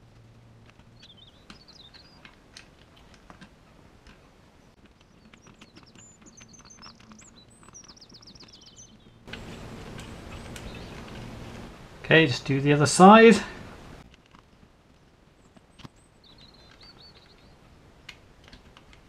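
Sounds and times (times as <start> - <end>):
birds chirping: 0.0 - 14.1, 14.8 - 19.0
low steady hum: 0.0 - 19.0
background hiss: 9.3 - 14.1.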